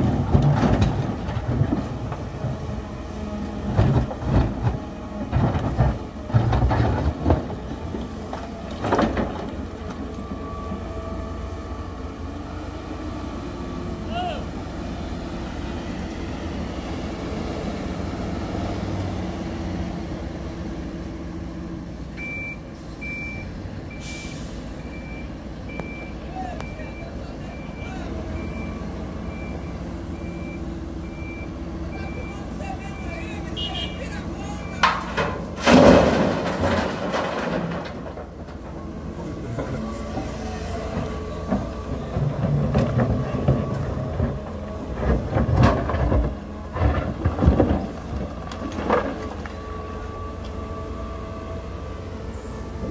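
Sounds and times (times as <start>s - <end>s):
excavator diesel engine running: 0.0s - 52.9s
rocks rattling into steel truck bed: 34.7s - 38.8s, 41.5s - 49.5s.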